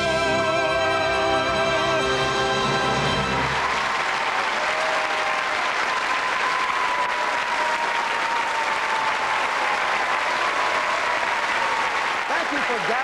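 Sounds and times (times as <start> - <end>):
audience applauding: 2.8 - 13.0.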